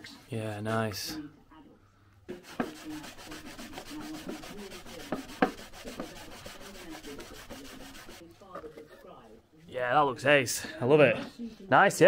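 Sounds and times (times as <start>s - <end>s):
pad rasping on wood: 2.4s - 8.2s.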